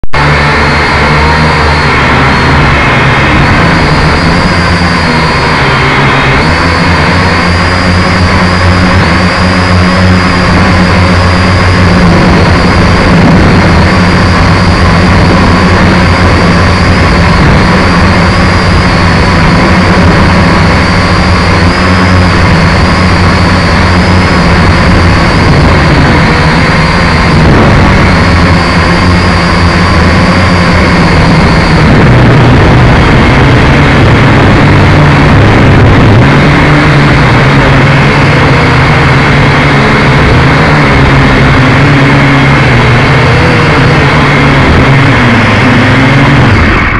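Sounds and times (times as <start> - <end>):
drone propellers buzzing: 0.0 - 46.9
high motor whine: 0.0 - 46.9.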